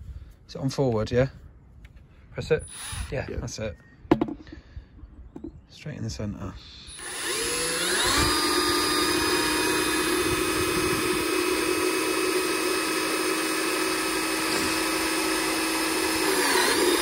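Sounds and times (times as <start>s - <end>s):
cordless drill boring through plastic: 2.6s - 3.2s, 6.9s - 17.0s.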